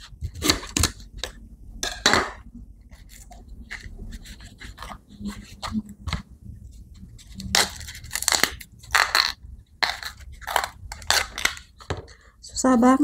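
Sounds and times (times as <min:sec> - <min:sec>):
bamboo sheath ripping: 0:07.4 - 0:11.6.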